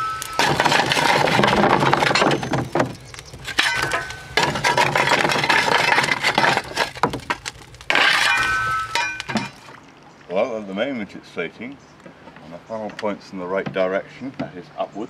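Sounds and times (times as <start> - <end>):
short metallic rings: 0.0 - 0.7, 3.6 - 4.6, 7.9 - 9.6
steel shovel scraping: 0.0 - 9.7
coal clattering against metal: 0.0 - 9.8.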